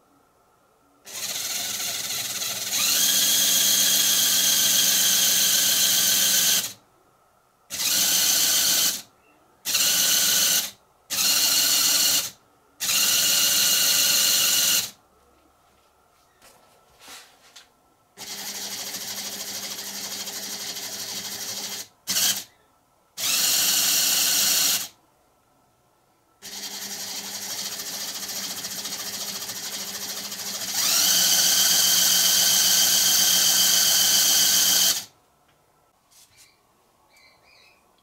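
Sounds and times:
electric motor whirring: 1.1 - 6.8, 7.7 - 9.0, 9.7 - 15.0, 23.2 - 24.9, 26.4 - 35.1.

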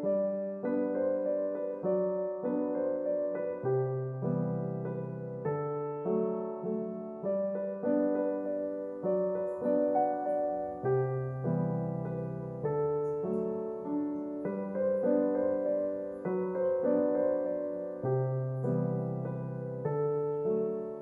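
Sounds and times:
soft piano piece: 0.0 - 21.0.

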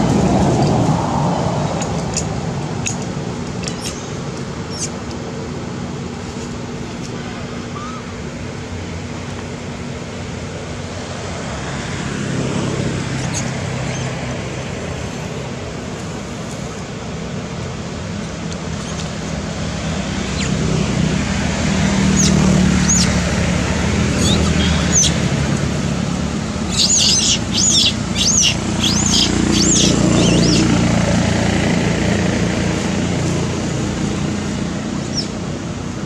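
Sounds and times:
passing traffic rumble: 0.0 - 36.0
birds chirping: 3.6 - 5.0, 20.0 - 20.9, 21.8 - 25.3, 26.6 - 30.9, 35.0 - 35.4.

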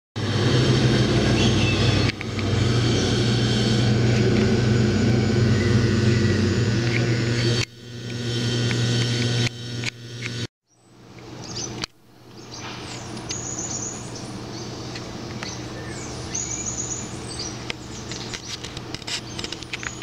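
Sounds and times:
water pump motor hum: 0.2 - 10.5.

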